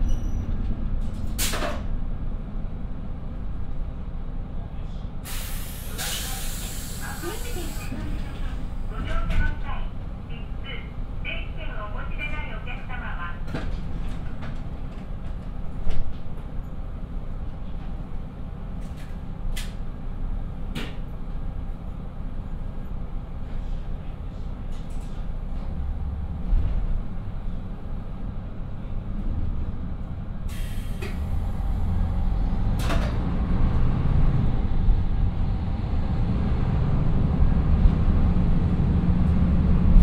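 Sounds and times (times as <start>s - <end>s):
diesel engines rumbling: 0.0s - 40.0s
air hiss: 5.3s - 7.9s, 30.5s - 31.2s.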